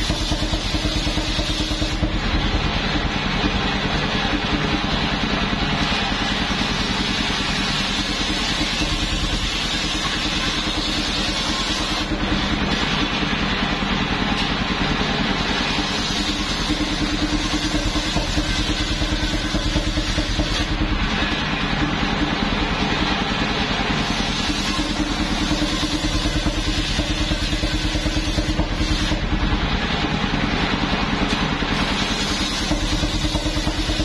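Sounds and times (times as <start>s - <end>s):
saw blade cutting hiss: 0.0s - 2.1s, 6.2s - 12.9s, 15.4s - 20.8s, 24.0s - 29.2s, 31.7s - 34.0s
sawmill engine pulse: 0.0s - 34.0s.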